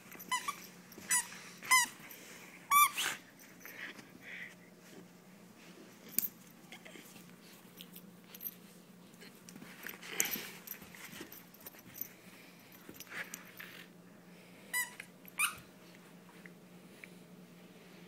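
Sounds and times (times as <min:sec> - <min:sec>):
high-pitched toy squeaks: 0:02.7 - 0:03.2, 0:14.8 - 0:15.6
scuffles and rustles: 0:04.8 - 0:13.6.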